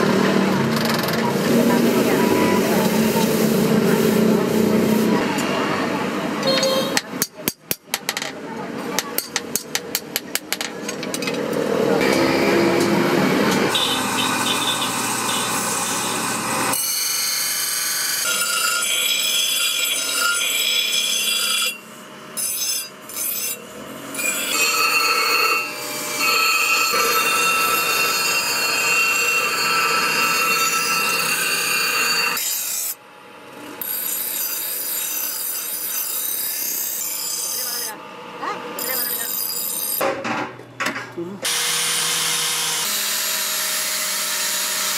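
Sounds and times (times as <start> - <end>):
grinding wheel running: 9.4 - 17.6, 24.2 - 32.5
knife grinding on grinding wheel: 13.6 - 33.0, 33.7 - 38.0, 38.8 - 40.0
knife blade grinding on wheel: 22.4 - 33.0, 38.8 - 40.0.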